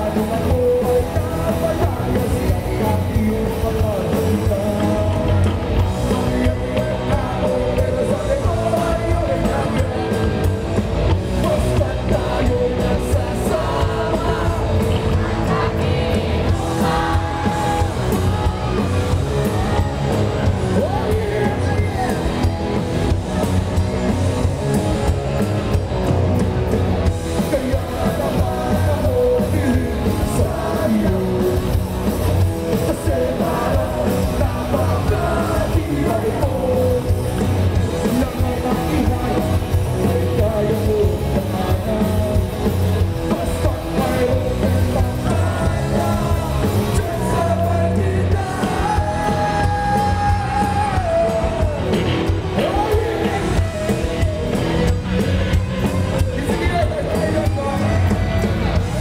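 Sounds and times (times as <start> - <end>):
man singing: 0.0 - 23.2, 27.1 - 55.2, 55.8 - 59.0
rock band playing live: 0.0 - 59.0.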